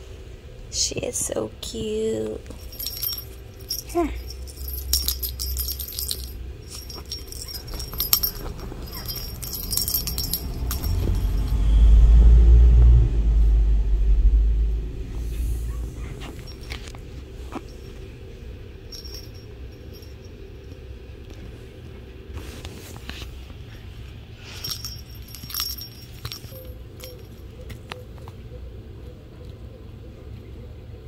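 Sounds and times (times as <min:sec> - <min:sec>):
faint rustles: 0:02.4 - 0:11.6, 0:15.0 - 0:27.9
bell toy jingling and rattling: 0:02.4 - 0:11.7, 0:16.2 - 0:20.9, 0:24.4 - 0:27.6
loud low rumble: 0:07.1 - 0:17.8.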